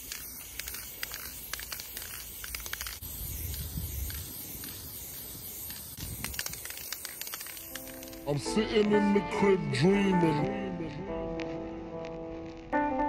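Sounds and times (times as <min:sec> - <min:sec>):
spray-paint can hissing: 0:00.0 - 0:08.3.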